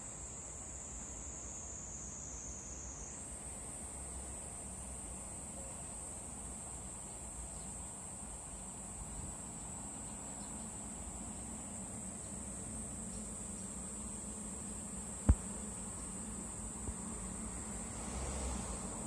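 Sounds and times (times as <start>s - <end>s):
cicada buzzing: 7.7s - 19.0s.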